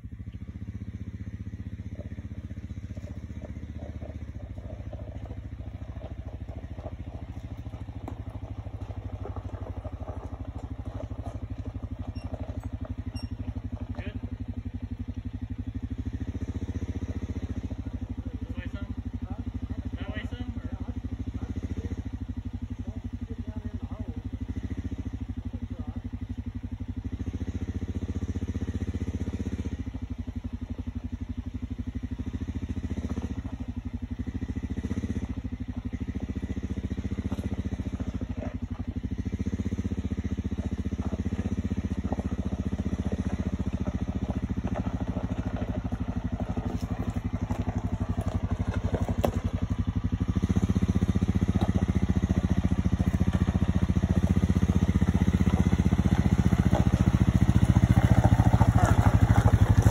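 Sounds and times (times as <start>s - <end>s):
atv engine at low revs: 0.0s - 59.9s
rocks knocking under tyres: 1.9s - 13.1s, 40.5s - 59.9s.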